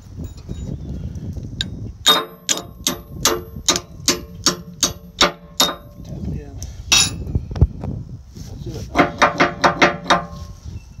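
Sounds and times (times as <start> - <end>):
hammer striking steel punch: 2.0 - 6.0, 6.9 - 7.3, 9.0 - 10.4.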